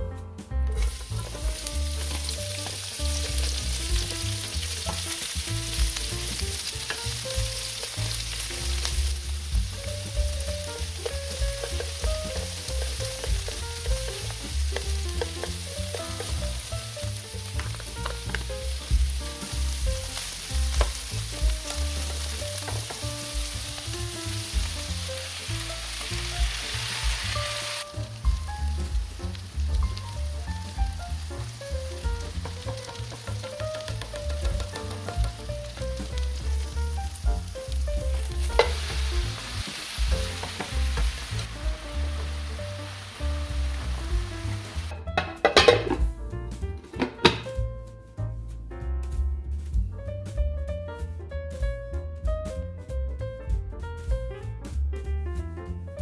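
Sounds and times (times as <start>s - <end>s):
oil sizzling in a frying pan: 0.8s - 46.1s
chopsticks clicking and scraping: 11.0s - 16.5s.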